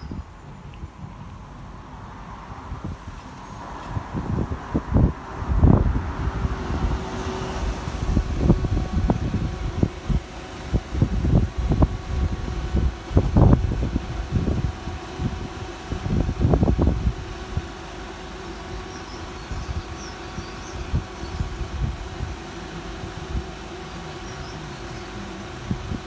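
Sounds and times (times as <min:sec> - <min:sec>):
wind buffeting microphone: 0:00.0 - 0:26.0
faint steady tones: 0:07.6 - 0:26.0.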